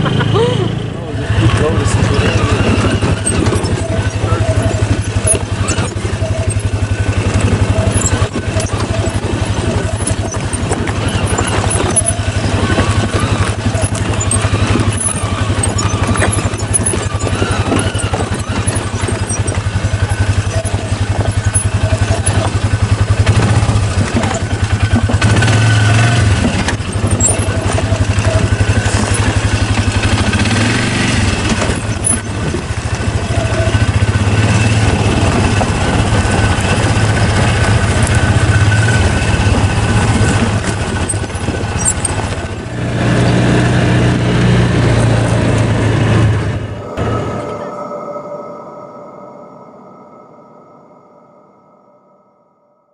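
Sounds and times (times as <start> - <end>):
utility vehicle engine drone: 0.0 - 52.9.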